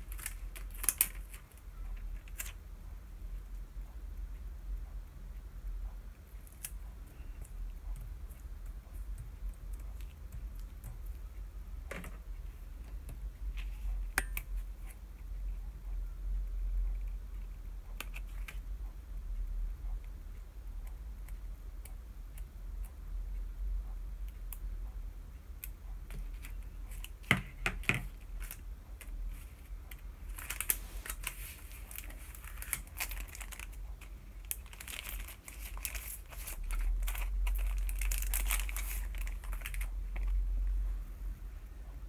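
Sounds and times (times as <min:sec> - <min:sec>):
plastic and paper crinkling: 0:00.0 - 0:02.6, 0:26.1 - 0:40.5.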